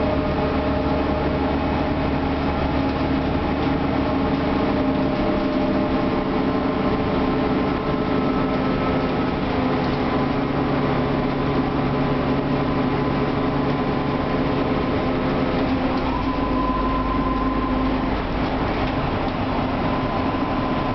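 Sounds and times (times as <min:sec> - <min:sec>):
bus diesel engine running: 0:00.0 - 0:20.9
deeper rumble: 0:00.0 - 0:20.9
high whine: 0:15.9 - 0:18.3, 0:18.9 - 0:20.9.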